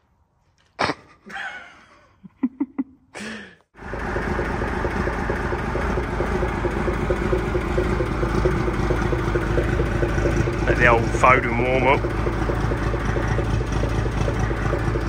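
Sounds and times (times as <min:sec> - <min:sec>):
diesel truck engine idling: 0:03.8 - 0:15.0.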